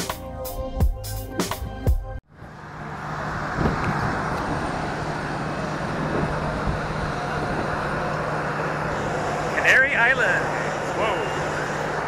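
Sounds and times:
background music: 0.0 - 2.2
aircraft engines and ground equipment: 1.4 - 12.0.

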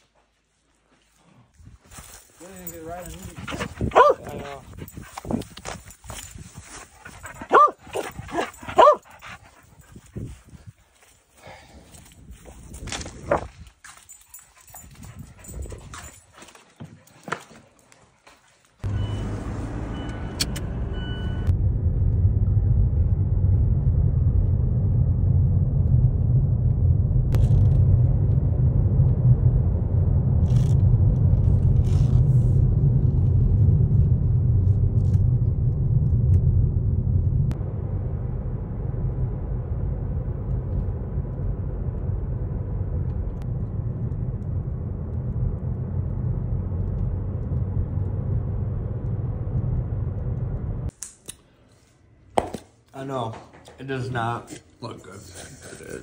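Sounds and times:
motor vehicle engine rumbling: 2.4 - 10.8, 18.8 - 50.9.

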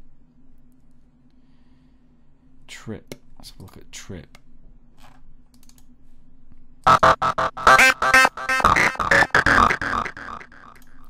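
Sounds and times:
synthesizer arpeggio of short notes: 6.9 - 10.8.

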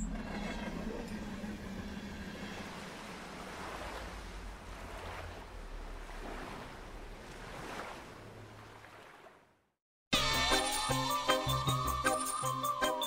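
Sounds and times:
noisy ambient wash: 0.0 - 8.6.

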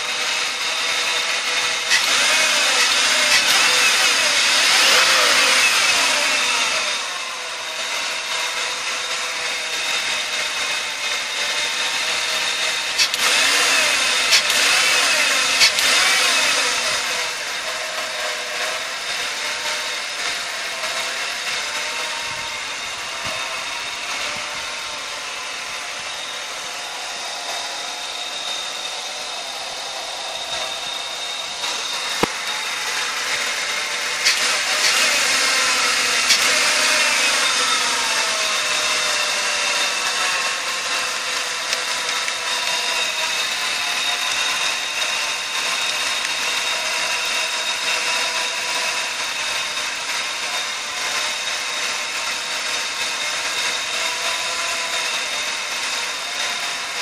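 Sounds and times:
car engine idling: 0.0 - 51.0
sharp clicks: 12.5 - 18.7, 31.6 - 37.8.

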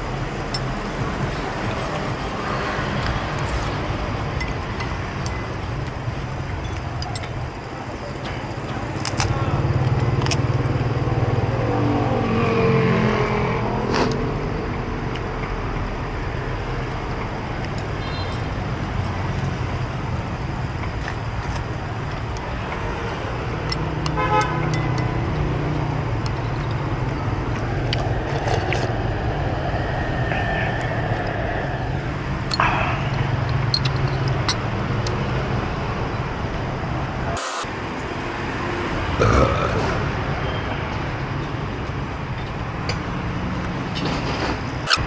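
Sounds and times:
traffic engines running: 0.0 - 45.0
car horn beeping: 24.1 - 24.8.

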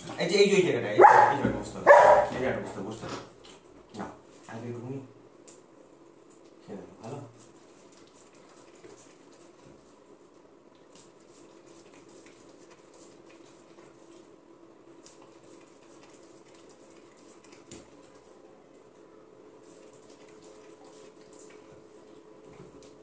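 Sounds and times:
dog licking and smacking: 7.4 - 10.0, 10.7 - 14.3, 15.0 - 18.4, 19.6 - 23.0.

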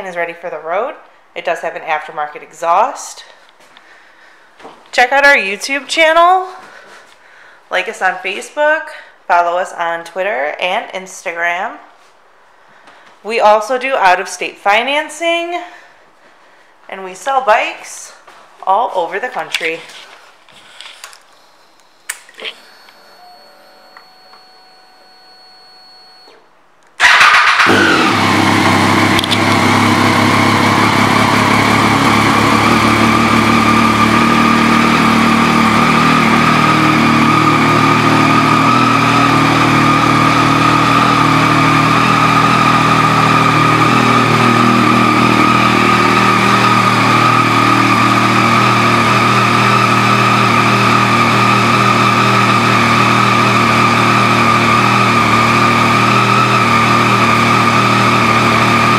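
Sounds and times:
motorcycle engine idling: 27.0 - 51.7.

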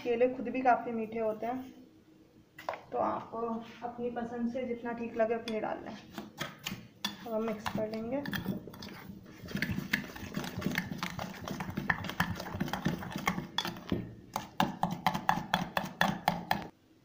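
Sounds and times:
spoon scraping metal bowl: 6.6 - 15.7.

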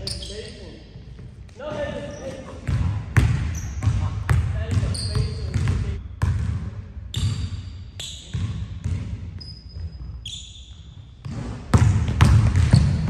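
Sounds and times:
sneaker squeaks on wood: 0.0 - 0.8, 4.8 - 5.8, 7.1 - 11.5, 12.6 - 13.0
basketball bouncing on wooden floor: 2.6 - 7.4, 8.2 - 10.1, 11.2 - 13.0.

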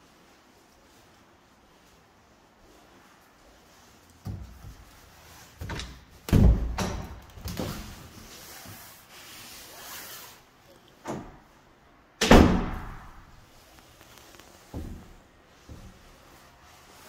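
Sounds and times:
soft rubbing noise: 0.0 - 5.6, 7.6 - 11.6, 13.3 - 17.0.

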